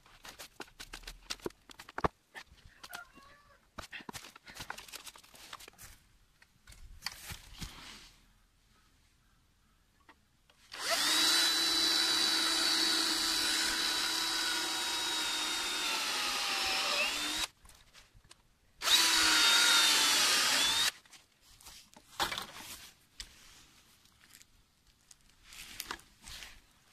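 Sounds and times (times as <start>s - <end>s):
electric drill running: 10.8s - 17.5s, 18.8s - 20.9s.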